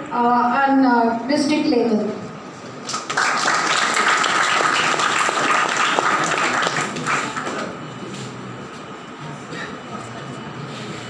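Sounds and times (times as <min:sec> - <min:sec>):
audience applauding: 0:02.8 - 0:07.8.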